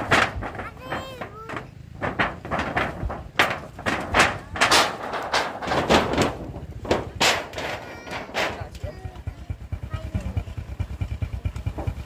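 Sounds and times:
rustling noise: 0:00.0 - 0:08.8
rapid knocks and thumps: 0:00.0 - 0:12.0.

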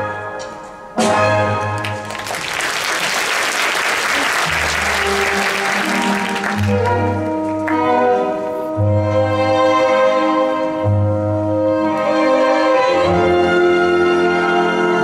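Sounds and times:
orchestra playing: 0:00.0 - 0:15.0
audience applauding: 0:01.8 - 0:07.9.

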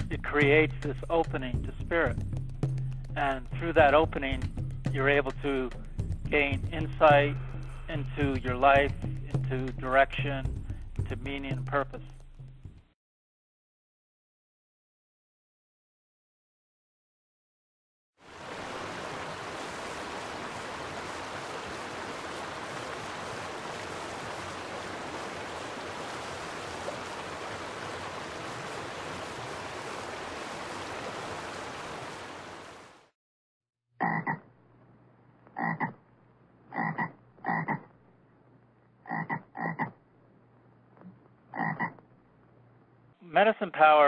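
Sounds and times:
frog croaking: 0:34.0 - 0:34.5, 0:35.5 - 0:36.0, 0:36.7 - 0:38.0, 0:39.0 - 0:40.0, 0:41.0 - 0:42.1.

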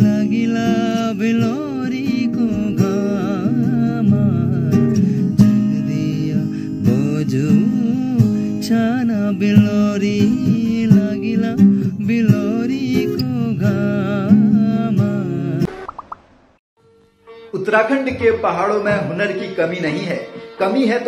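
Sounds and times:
man singing: 0:00.0 - 0:15.7
strummed acoustic guitar: 0:00.0 - 0:15.7.

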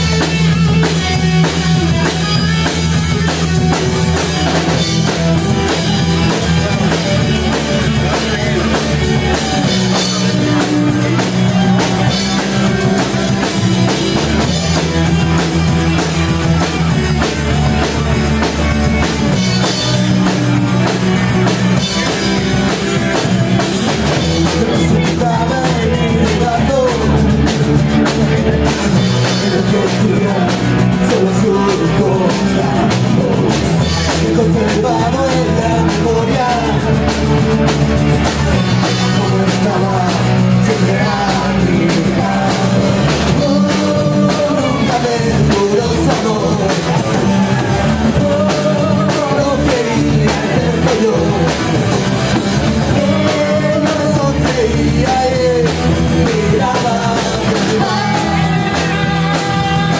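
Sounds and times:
bass guitar: 0:00.0 - 0:59.9
distorted electric guitars: 0:00.0 - 0:59.9
drum kit: 0:00.0 - 0:59.9
woman singing: 0:56.2 - 0:59.9.

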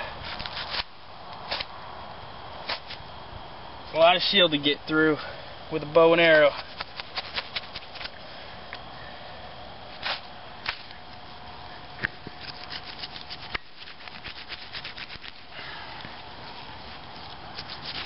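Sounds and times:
knife scraping through gristle: 0:00.0 - 0:00.9, 0:02.6 - 0:03.0, 0:06.4 - 0:08.2, 0:09.9 - 0:11.3, 0:12.2 - 0:15.7, 0:16.4 - 0:18.0.

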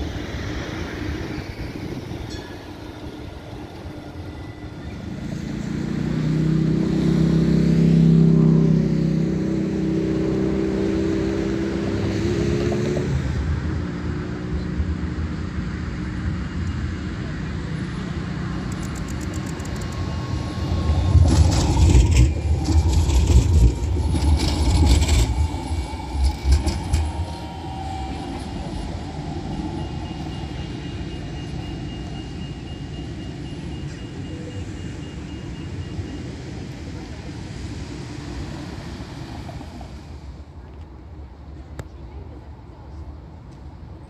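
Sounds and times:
road traffic hum: 0:00.0 - 0:44.0
tram passing with rumble: 0:00.0 - 0:44.0
sharp clicks and rattles: 0:18.7 - 0:20.0.

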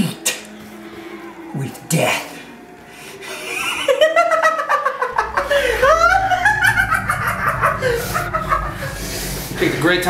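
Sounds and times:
man laughing maniacally: 0:03.4 - 0:09.0.

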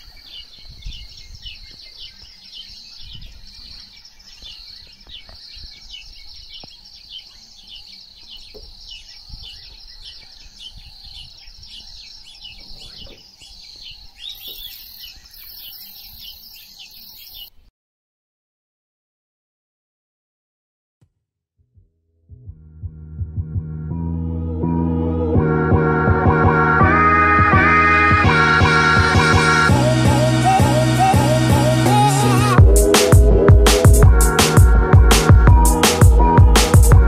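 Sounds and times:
birds chirping: 0:00.0 - 0:17.7
low rumble: 0:22.3 - 0:31.7.

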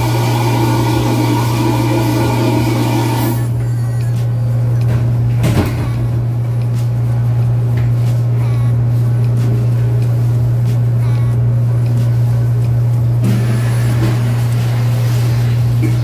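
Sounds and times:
low machine drone: 0:00.0 - 0:16.0.

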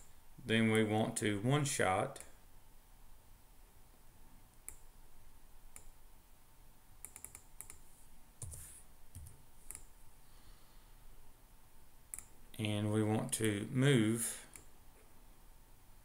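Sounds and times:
mouse clicks: 0:04.6 - 0:04.9, 0:07.0 - 0:07.8, 0:12.1 - 0:12.3, 0:14.5 - 0:14.7
computer keyboard typing: 0:07.0 - 0:07.8, 0:08.4 - 0:09.9.

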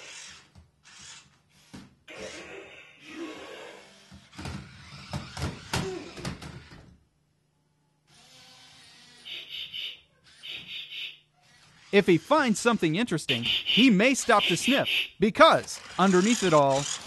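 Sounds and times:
toy robot motor and gears: 0:00.0 - 0:06.7, 0:08.1 - 0:13.2, 0:15.4 - 0:17.0.

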